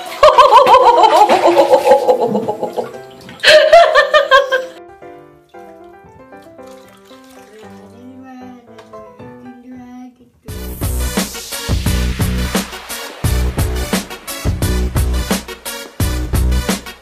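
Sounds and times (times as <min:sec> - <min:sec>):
splashing water: 0:00.0 - 0:08.2
quiet background music: 0:00.2 - 0:11.5.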